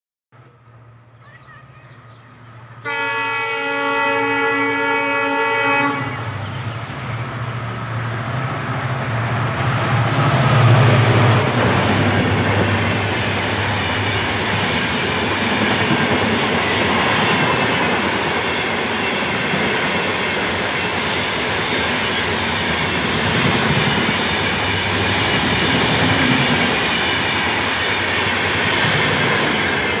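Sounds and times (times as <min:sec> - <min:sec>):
wheels roaring on rails: 0:00.4 - 0:30.0
train passing at speed: 0:00.7 - 0:30.0
locomotive horn blast: 0:02.8 - 0:06.8.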